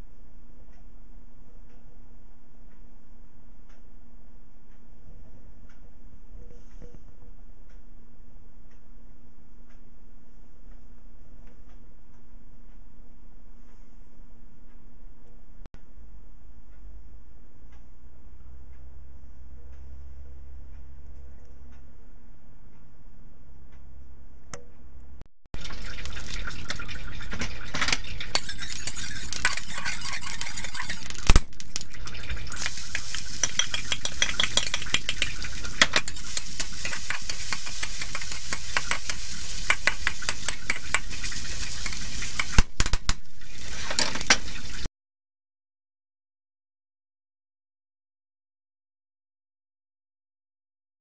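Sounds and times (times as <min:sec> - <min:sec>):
potato sizzling in hot oil: 0:25.6 - 0:44.9
metal spatula scraping wok: 0:25.8 - 0:31.4, 0:32.0 - 0:42.6, 0:43.4 - 0:44.9.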